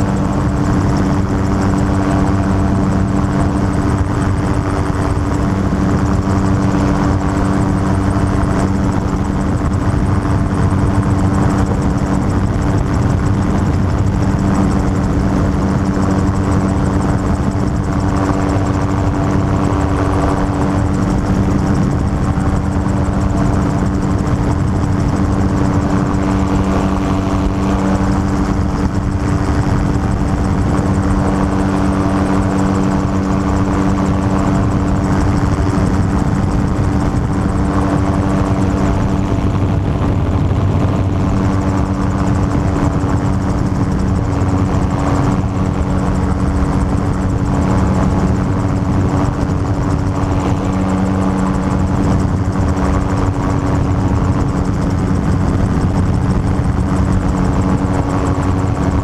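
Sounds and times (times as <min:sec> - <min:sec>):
aircraft engine and propeller droning: 0:00.0 - 0:59.0.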